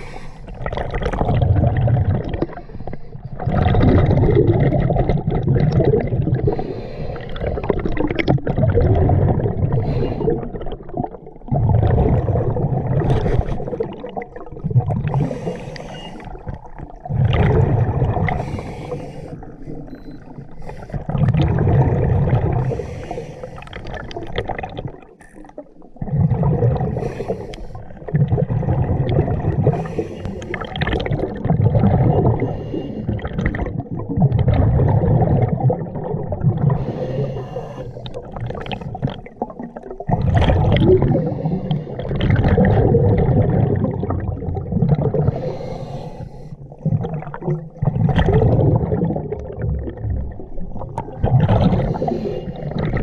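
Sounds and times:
diver breathing through a regulator: 0:00.0 - 0:00.7, 0:02.3 - 0:03.4, 0:06.4 - 0:08.0, 0:09.7 - 0:10.6, 0:13.0 - 0:14.0, 0:15.0 - 0:16.6, 0:17.2 - 0:24.2, 0:26.0 - 0:28.7, 0:29.6 - 0:31.2, 0:32.1 - 0:33.7, 0:36.6 - 0:39.2, 0:40.8 - 0:42.9, 0:45.0 - 0:47.1, 0:51.3 - 0:53.0
bubbles gurgling underwater: 0:00.0 - 0:53.0.

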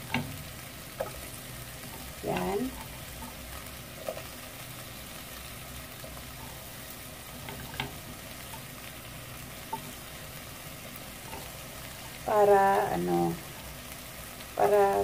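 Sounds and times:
spatula tapping pan: 0:00.0 - 0:04.3, 0:06.0 - 0:08.8, 0:09.6 - 0:10.2, 0:11.1 - 0:12.2
potatoes sizzling in a pan: 0:00.0 - 0:15.0.

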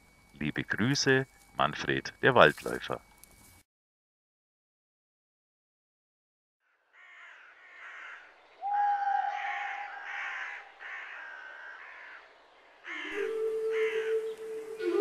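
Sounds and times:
crow cawing: 0:06.6 - 0:14.3
music with held low note: 0:13.1 - 0:15.0.

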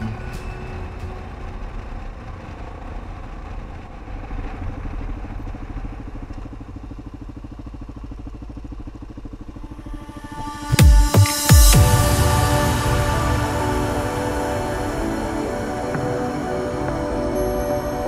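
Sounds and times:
motorcycle engine: 0:00.0 - 0:18.0.

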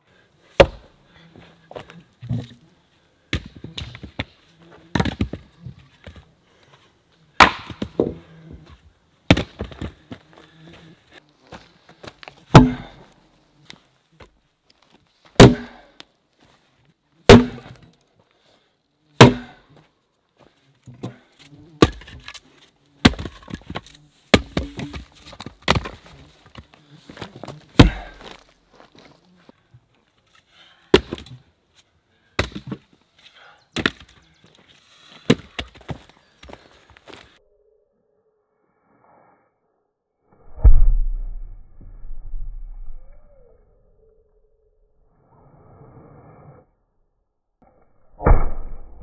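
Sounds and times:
axe splitting wood: 0:00.6 - 0:00.9, 0:07.4 - 0:08.2, 0:12.5 - 0:13.0, 0:15.4 - 0:15.8, 0:17.3 - 0:17.8, 0:19.2 - 0:19.6, 0:21.8 - 0:22.4, 0:23.0 - 0:26.1, 0:27.8 - 0:28.4, 0:30.9 - 0:31.4, 0:32.4 - 0:32.8, 0:35.3 - 0:35.9.

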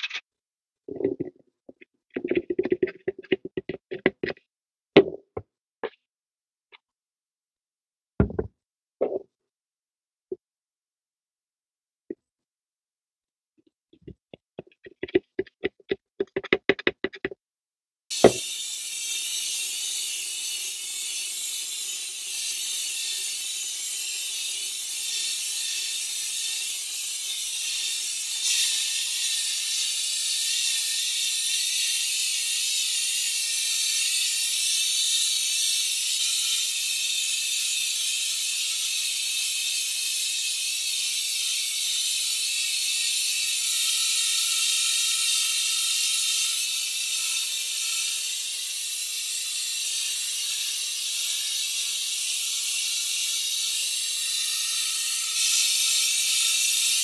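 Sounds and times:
paint spray gun hissing: 0:18.1 - 0:19.2.

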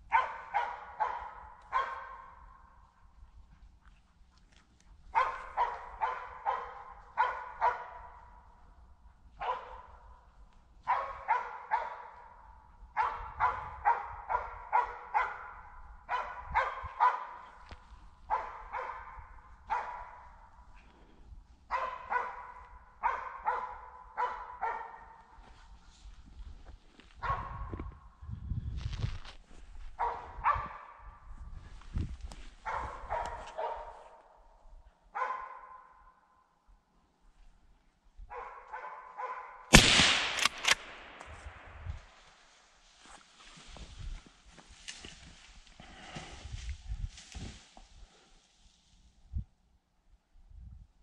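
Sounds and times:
dogs barking: 0:00.0 - 0:02.6, 0:05.1 - 0:08.5, 0:09.4 - 0:10.2, 0:10.8 - 0:17.7, 0:18.3 - 0:20.6, 0:21.7 - 0:25.4, 0:27.2 - 0:27.7, 0:30.0 - 0:31.1, 0:32.6 - 0:34.3, 0:35.1 - 0:36.0, 0:38.3 - 0:39.7.

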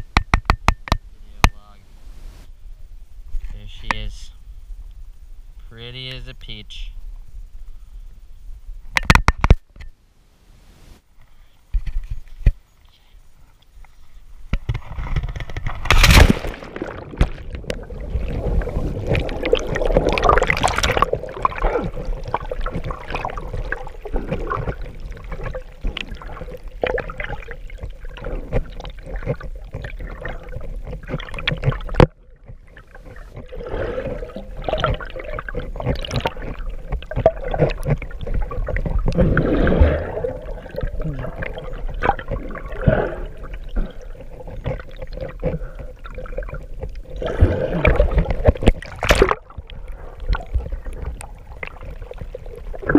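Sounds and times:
water splash: 0:14.8 - 0:32.1, 0:32.9 - 0:45.3, 0:46.1 - 0:52.9
underwater bubbling: 0:14.9 - 0:52.9.

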